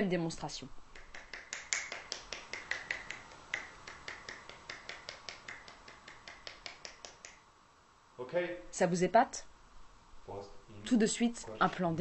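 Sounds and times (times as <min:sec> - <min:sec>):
fingers slapping together: 0:00.9 - 0:07.5.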